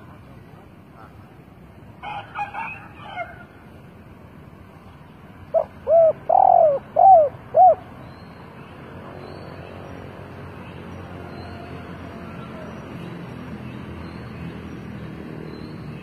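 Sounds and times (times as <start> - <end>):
dove cooing: 5.5 - 7.8.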